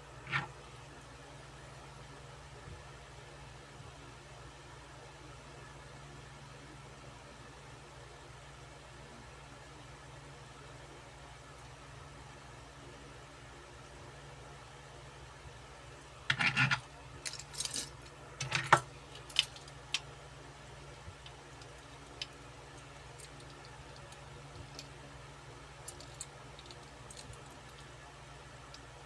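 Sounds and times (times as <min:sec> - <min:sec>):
steady low hum: 0:00.0 - 0:29.0
metal toy cars clinking: 0:16.3 - 0:18.6.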